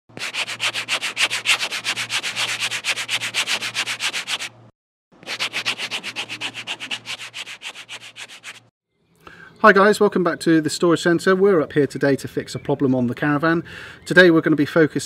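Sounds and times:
brush scrubbing over paper: 0.2 - 4.6, 5.2 - 8.7.

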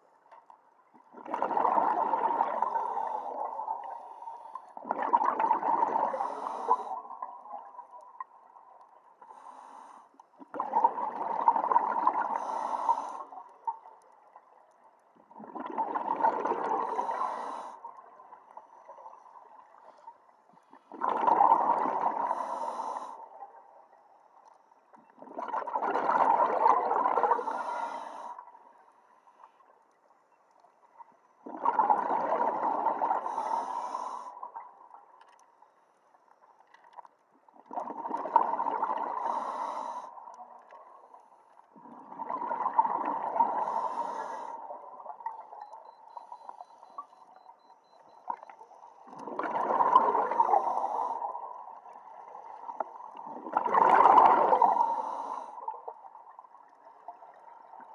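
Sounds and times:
exhaled bubbles underwater: 0.8 - 9.4, 10.4 - 20.0, 20.6 - 23.9, 24.9 - 28.5, 31.0 - 35.1, 37.5 - 41.1, 41.7 - 57.9
regulator inhalations: 6.1 - 7.0, 12.4 - 13.4, 16.9 - 17.9, 22.3 - 23.3, 27.4 - 28.4, 33.3 - 34.4, 39.2 - 40.2, 43.6 - 44.6, 54.7 - 55.6.

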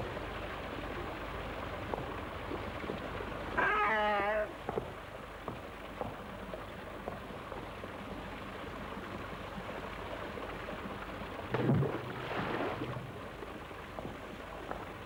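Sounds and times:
water churning: 0.0 - 15.0
bundle splashing into water: 11.5 - 13.2.

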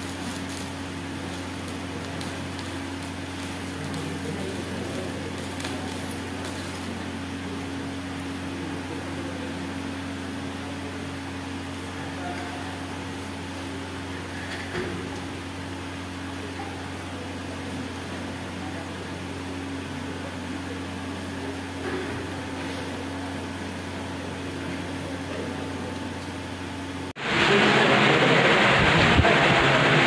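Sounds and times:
electric fan humming: 0.0 - 30.0
loud rushing noise: 27.2 - 30.0
low drone: 27.2 - 30.0.

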